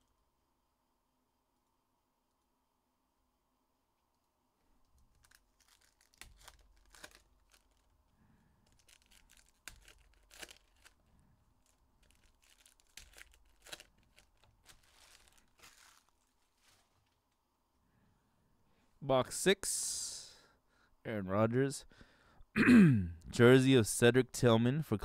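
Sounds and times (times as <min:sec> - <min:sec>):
foil packs tearing and crinkling: 0:05.0 - 0:08.0, 0:08.6 - 0:11.0, 0:11.6 - 0:17.1.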